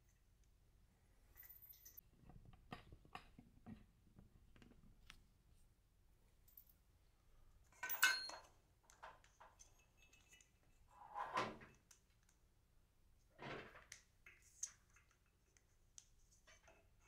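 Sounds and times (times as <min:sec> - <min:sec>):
metal hardware clinking and rattling: 0:07.8 - 0:08.6.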